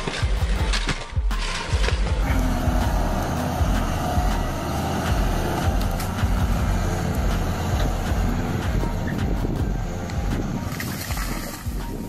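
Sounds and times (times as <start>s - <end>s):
excavator diesel engine running: 2.0s - 10.8s.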